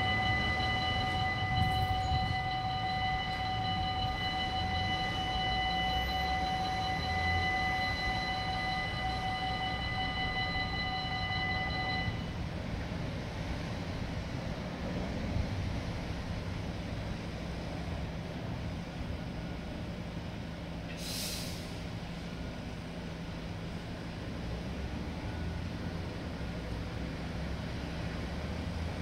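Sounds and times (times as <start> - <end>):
level crossing warning bell: 0.0 - 12.5.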